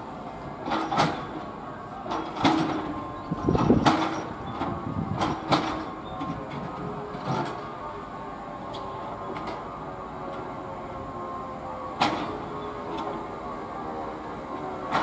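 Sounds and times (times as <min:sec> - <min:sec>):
train rumble: 0:00.0 - 0:15.0
train wheels clunking over rail joints: 0:00.0 - 0:15.0.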